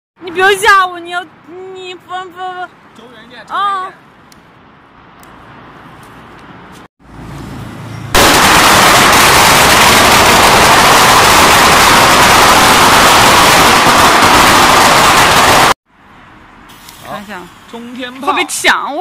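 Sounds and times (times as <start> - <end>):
firecrackers crackling: 8.2 - 15.8.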